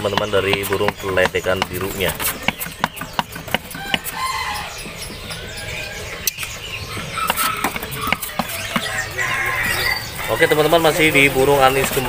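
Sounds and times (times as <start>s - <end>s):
sharp clicks and taps: 0.0s - 4.2s, 7.2s - 8.9s
birds chirping and calling: 0.0s - 12.0s.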